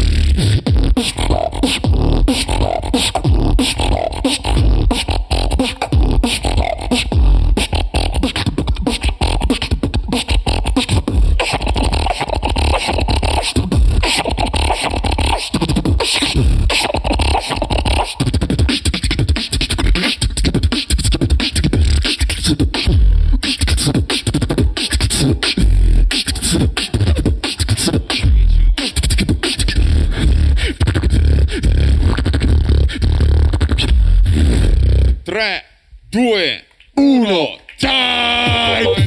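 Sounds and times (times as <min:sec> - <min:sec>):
person beatboxing: 0:00.0 - 0:35.2, 0:37.6 - 0:39.0.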